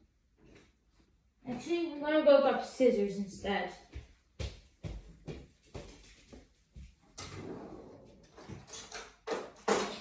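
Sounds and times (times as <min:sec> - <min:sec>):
kitchen drawer sliding open: 0:07.2 - 0:09.0.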